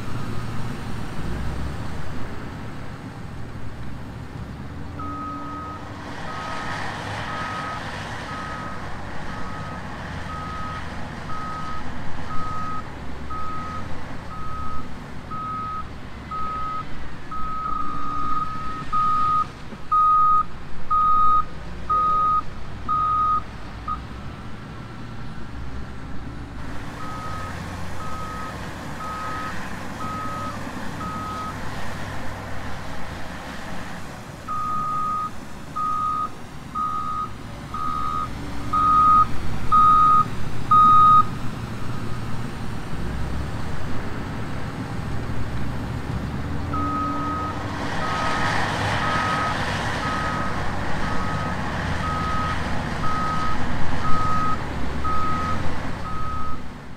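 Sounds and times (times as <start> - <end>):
backup alarm beeping: 34.5 - 41.3.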